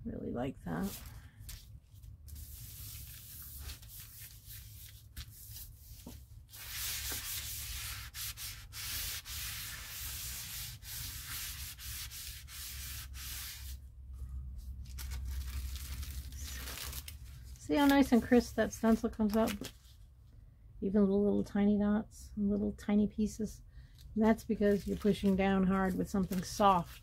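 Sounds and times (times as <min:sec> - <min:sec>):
tissue paper rubbed by hand: 0:02.3 - 0:13.8.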